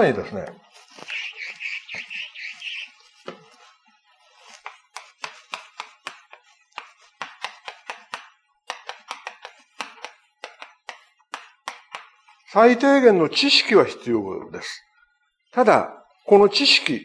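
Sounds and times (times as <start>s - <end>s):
blackboard eraser wiping: 0.6s - 12.5s
chalk tapping on a blackboard: 0.8s - 12.5s.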